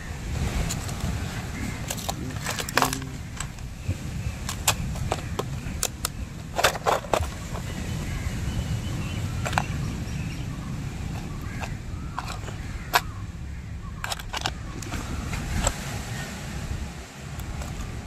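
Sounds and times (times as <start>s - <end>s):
plastic box latches clicking: 1.8s - 3.7s, 4.4s - 7.8s, 9.4s - 9.8s, 11.2s - 13.1s, 14.0s - 15.8s.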